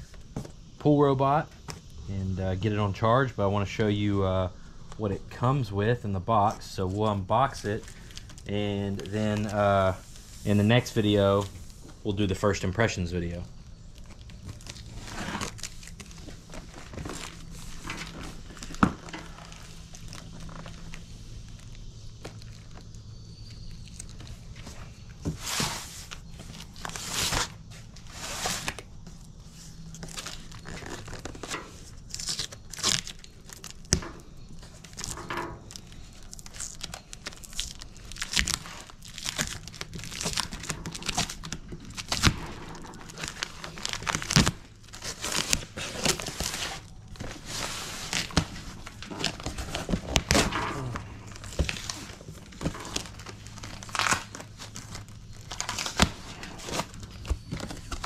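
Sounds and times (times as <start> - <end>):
tape tearing: 13.9 - 58.0
cardboard flaps rustling: 14.0 - 21.6, 22.2 - 58.0.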